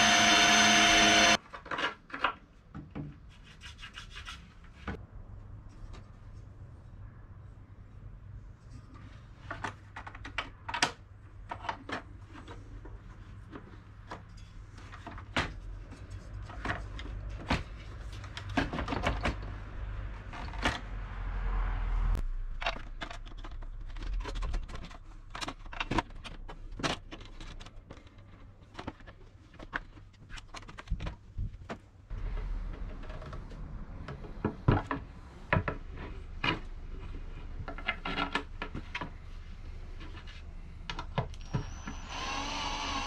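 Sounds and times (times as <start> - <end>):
scraping and rubbing: 3.2 - 5.0.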